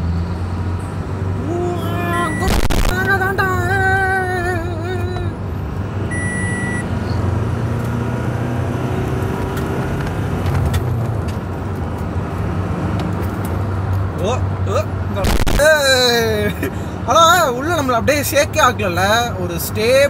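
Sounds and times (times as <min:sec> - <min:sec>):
car engine and road noise: 0:00.0 - 0:20.0
short high beep: 0:02.2 - 0:02.9, 0:06.1 - 0:06.9.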